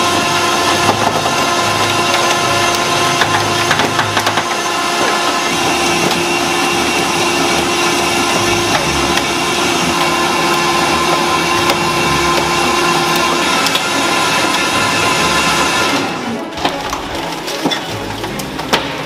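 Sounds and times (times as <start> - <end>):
hydraulic pump whine: 0.0 - 19.0
car body being crushed: 16.4 - 19.0.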